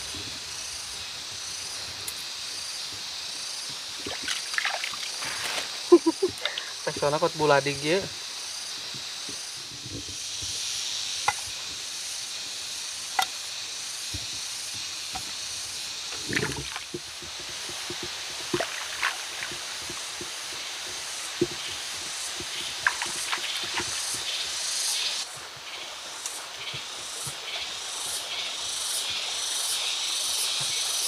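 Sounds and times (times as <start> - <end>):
stream water running: 0.0 - 31.0
hands splashing in water: 4.0 - 5.6, 16.2 - 16.9, 18.5 - 19.6, 22.8 - 24.0.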